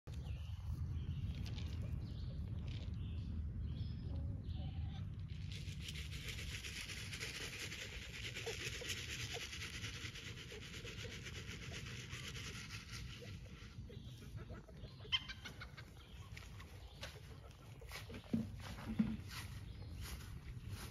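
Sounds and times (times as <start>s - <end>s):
steady outdoor hiss: 0.1s - 20.9s
chickens clucking: 6.0s - 20.9s.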